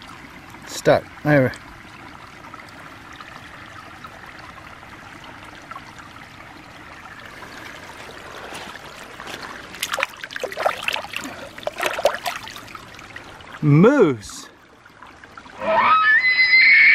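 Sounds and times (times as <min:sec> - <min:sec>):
stream water trickling: 0:00.0 - 0:16.9
toy splashing in water: 0:09.3 - 0:12.8.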